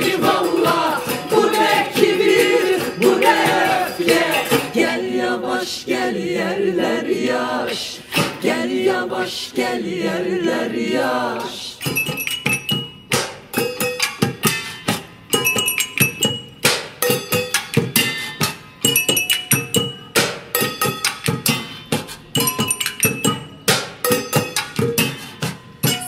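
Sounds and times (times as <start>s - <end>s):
percussion on metal pots: 0.0s - 4.8s, 11.8s - 26.0s.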